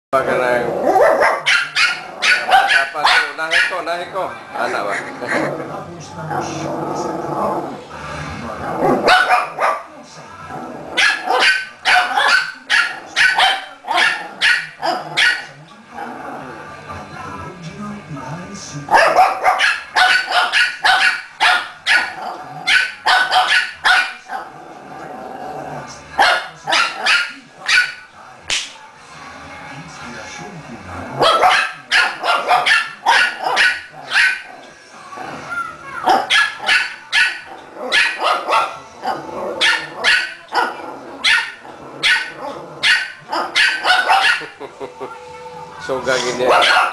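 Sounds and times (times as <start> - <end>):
puppy yapping: 1.0 - 3.8, 9.0 - 9.9, 11.0 - 15.5, 18.9 - 24.2, 31.2 - 34.5, 35.6 - 38.8, 39.6 - 44.6, 46.5 - 46.9.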